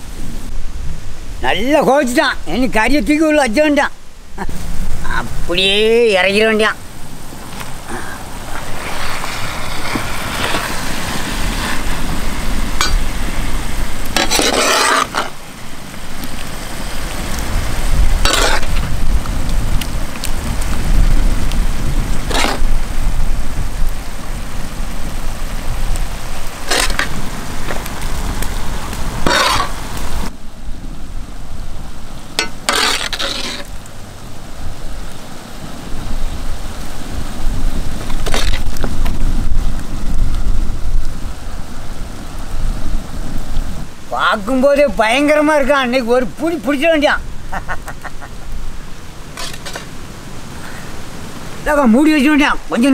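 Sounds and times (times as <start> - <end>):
gravy bubbling and sizzling: 4.3 - 30.4, 31.0 - 41.1
metal ladle scraping pan: 12.8 - 13.1, 14.1 - 15.4, 18.2 - 18.8, 22.3 - 22.7, 26.6 - 27.2, 29.2 - 29.8, 32.4 - 33.7, 49.3 - 49.9.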